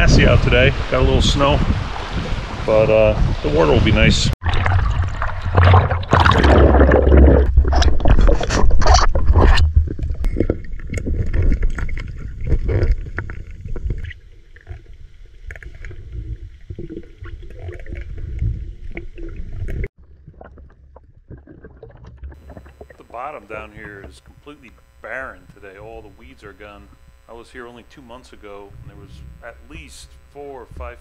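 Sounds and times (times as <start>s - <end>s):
muffled underwater rumble: 0.0s - 31.0s
underwater churning and knocking: 4.4s - 25.0s
underwater clicks: 4.4s - 27.3s.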